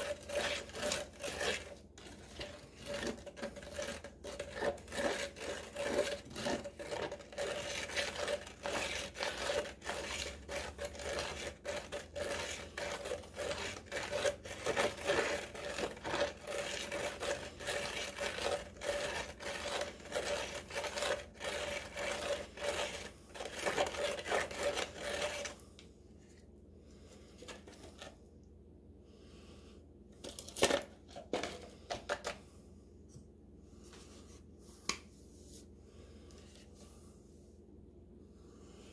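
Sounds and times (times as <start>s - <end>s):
stick scraping plastic cup: 0.0s - 25.6s, 27.2s - 28.2s, 30.2s - 32.4s
faint steady hum: 0.0s - 38.9s.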